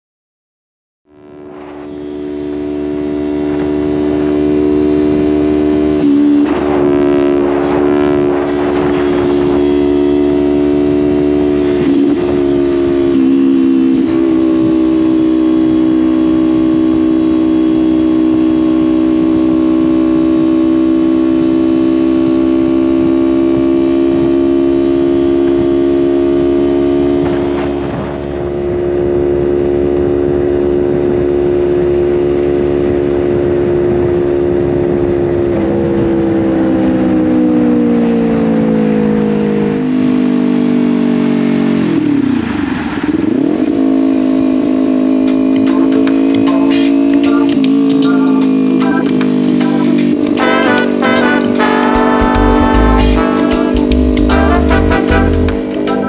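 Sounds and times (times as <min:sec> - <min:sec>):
motorcycle engine running: 0:01.0 - 0:56.0.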